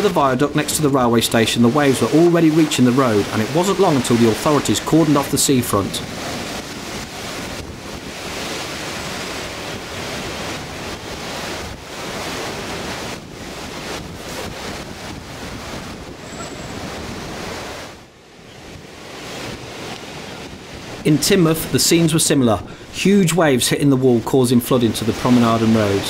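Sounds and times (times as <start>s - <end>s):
waves crashing against a sea wall: 0.0s - 18.0s
water washing across seafront: 0.0s - 26.0s
wind gusting on microphone: 0.0s - 26.0s.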